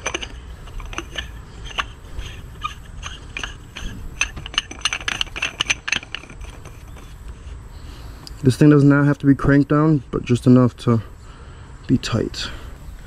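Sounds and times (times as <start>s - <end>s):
cap screwing clicks and scraping: 0.0s - 7.6s.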